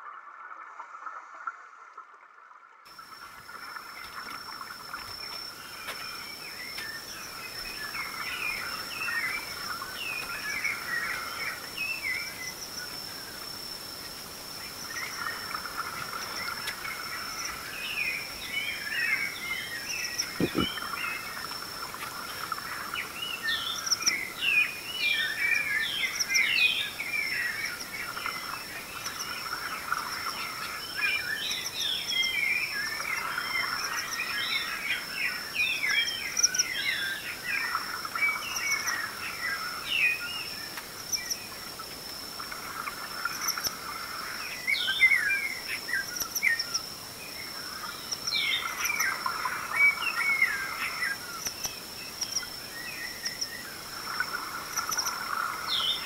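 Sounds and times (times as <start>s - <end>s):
birds chirping and whistling: 17.7s - 21.3s.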